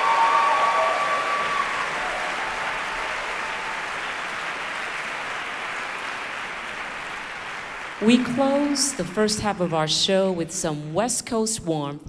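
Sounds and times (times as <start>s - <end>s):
audience cheering: 0.0s - 8.9s
audience applauding: 0.0s - 9.8s.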